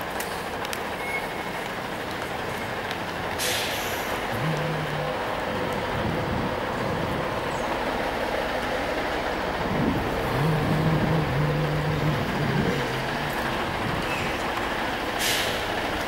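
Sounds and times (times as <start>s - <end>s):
city street noise: 0.0s - 16.0s
low hum shifting in pitch: 4.2s - 15.0s.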